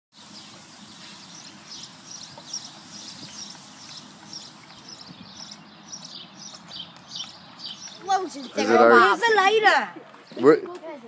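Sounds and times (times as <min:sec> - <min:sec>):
smoke bomb hissing: 0:00.1 - 0:04.7
birds chirping: 0:00.1 - 0:11.0.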